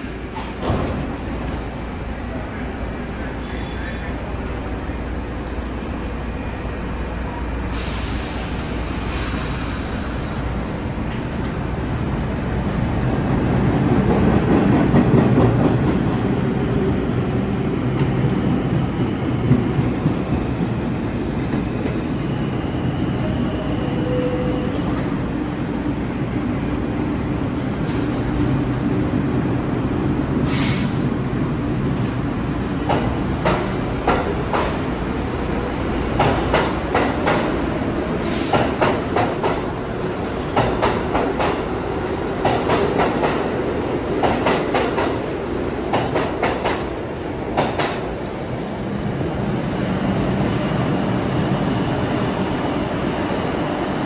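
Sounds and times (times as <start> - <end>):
subway train rumbling: 0.0 - 54.0
short high hisses: 7.7 - 10.6, 30.4 - 31.2.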